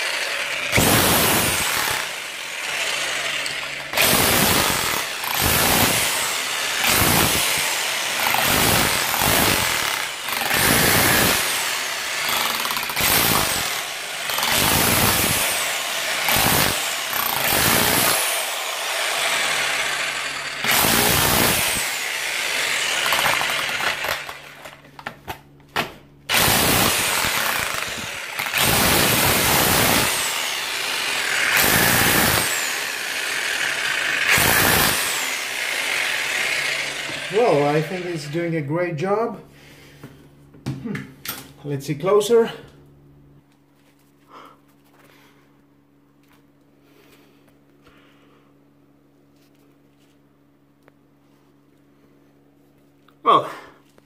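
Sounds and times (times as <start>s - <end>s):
hammer drill chiselling masonry: 0.0s - 24.8s, 26.3s - 38.7s.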